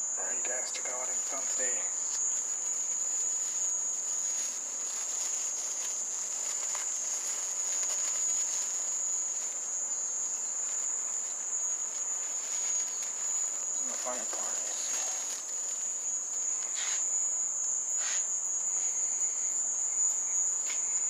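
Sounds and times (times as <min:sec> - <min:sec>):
mole cricket buzzing: 0:00.0 - 0:21.0
plastic bag rustling: 0:00.6 - 0:17.2.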